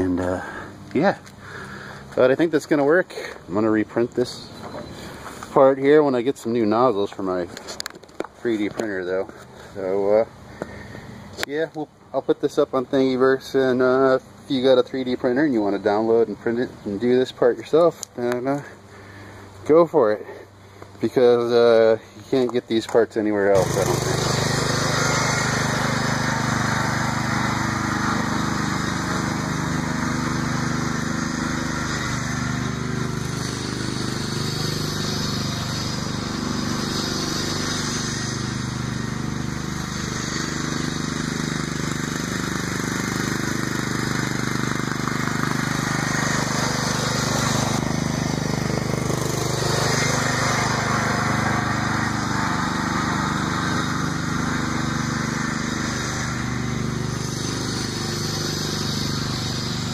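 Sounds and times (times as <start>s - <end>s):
tractor engine running: 20.8s - 59.9s.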